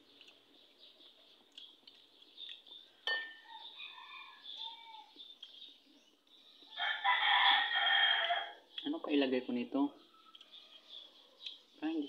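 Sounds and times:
metal spoon clinking bowl: 0:03.0 - 0:03.5
rooster crowing: 0:03.4 - 0:05.1, 0:06.8 - 0:08.6
faint bird chirps: 0:08.2 - 0:12.0.

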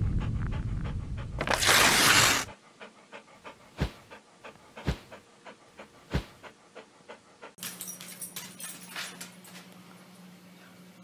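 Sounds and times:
dog panting: 0:00.0 - 0:01.5, 0:02.2 - 0:07.6.

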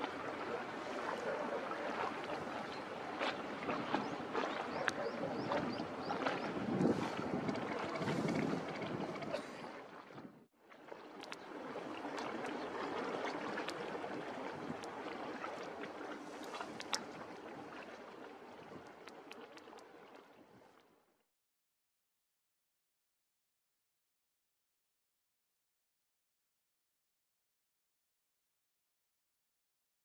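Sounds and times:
motorboat engine running: 0:00.0 - 0:10.4
harbour noise: 0:00.0 - 0:20.2.

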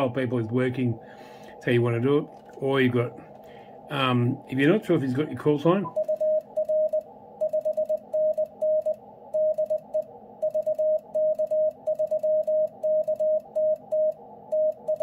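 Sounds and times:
morse code tone: 0:05.8 - 0:15.0.

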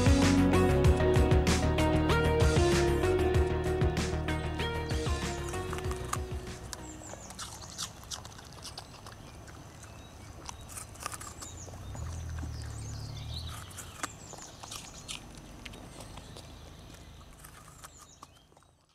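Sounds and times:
dog chewing apple: 0:05.0 - 0:18.9.

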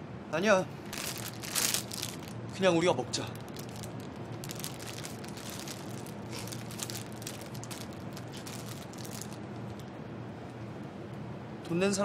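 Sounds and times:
faint steady hum: 0:00.0 - 0:12.0
plastic wrapper crinkling: 0:00.9 - 0:02.6, 0:03.3 - 0:09.8.

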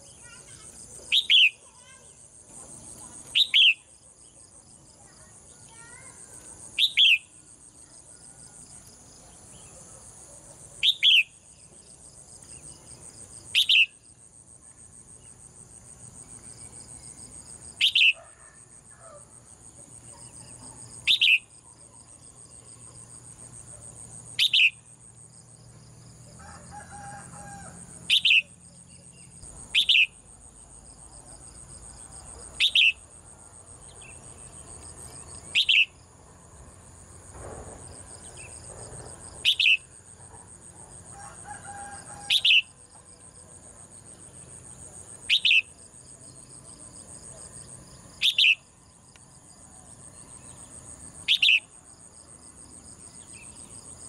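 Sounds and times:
insects buzzing: 0:00.0 - 0:54.0.

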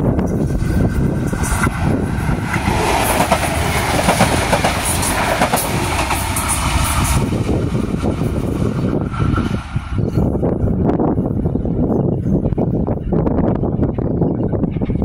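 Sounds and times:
railcar engines running: 0:00.0 - 0:15.0
train wheels clattering over rail joints: 0:00.8 - 0:07.4.

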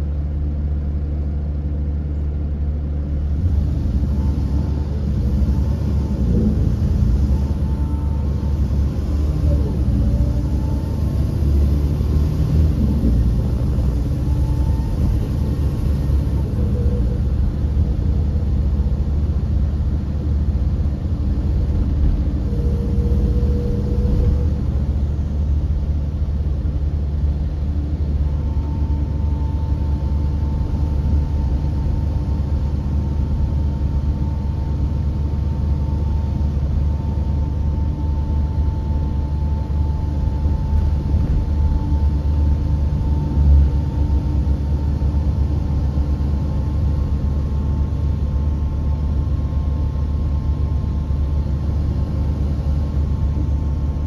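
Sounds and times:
diesel engine and road rumble: 0:00.0 - 0:54.0
faint steady whine: 0:00.0 - 0:54.0.

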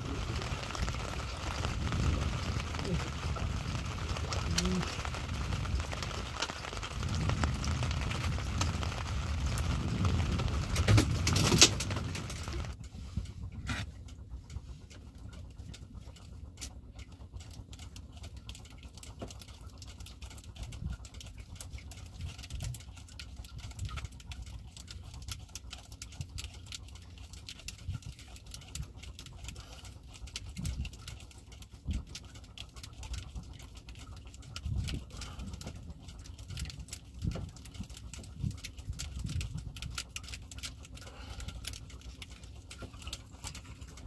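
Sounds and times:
water lapping against boat hull: 0:00.0 - 0:44.0.

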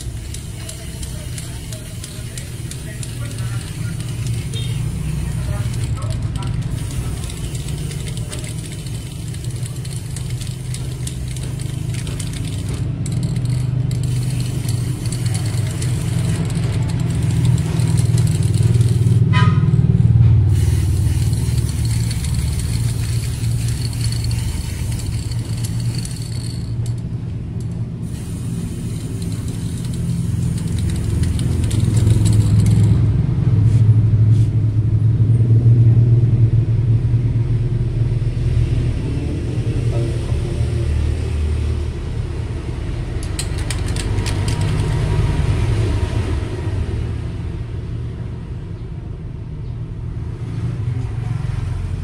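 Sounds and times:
spray-paint can hissing: 0:00.0 - 0:19.3, 0:20.5 - 0:27.1, 0:28.0 - 0:33.0, 0:43.2 - 0:45.1
steady low rumble: 0:00.0 - 0:45.6.

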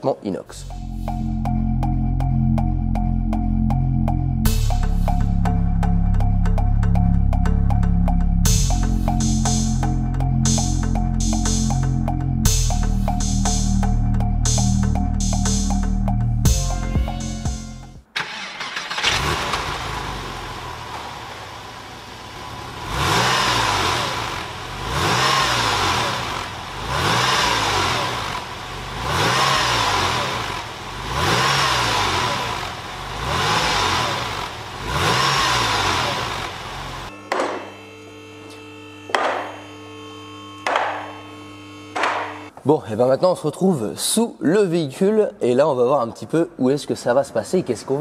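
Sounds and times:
car engine idling and revving: 0:00.6 - 0:17.4, 0:18.2 - 0:37.2.

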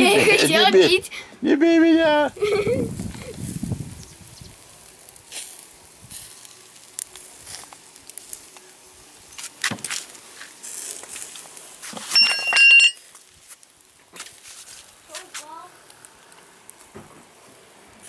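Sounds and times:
chicken crackling on grill: 0:01.6 - 0:12.4, 0:13.0 - 0:18.0
metallic clinking of grill baskets: 0:12.0 - 0:13.1.

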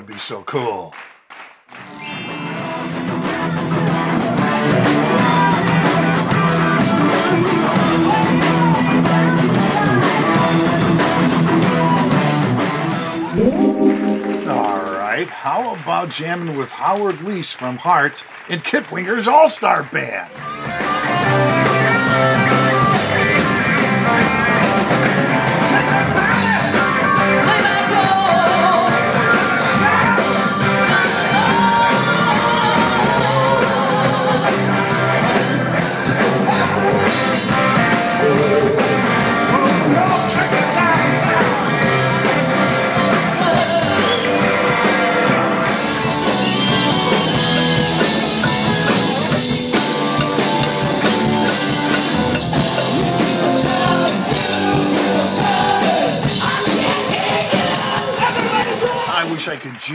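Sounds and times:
electric guitar: 0:01.8 - 0:15.4, 0:20.4 - 0:59.1
person singing: 0:13.4 - 0:15.4, 0:38.1 - 0:42.0, 0:52.5 - 0:59.1
drum kit with cymbals: 0:20.8 - 0:59.3.

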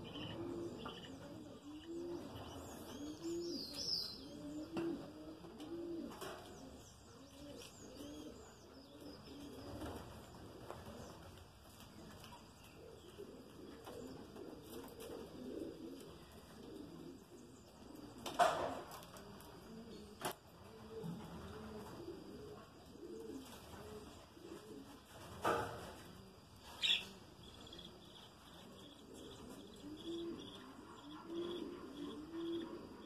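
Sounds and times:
low cooing notes: 0:00.0 - 0:06.4.

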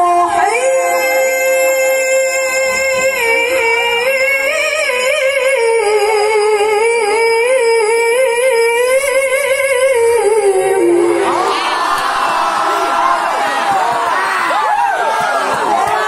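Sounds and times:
woman reciting melodically: 0:00.0 - 0:11.4.

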